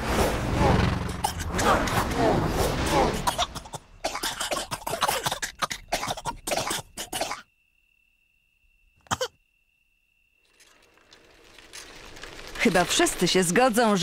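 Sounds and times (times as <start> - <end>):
cartoon animals coughing: 1.2 - 2.0, 3.1 - 7.5, 9.1 - 9.4.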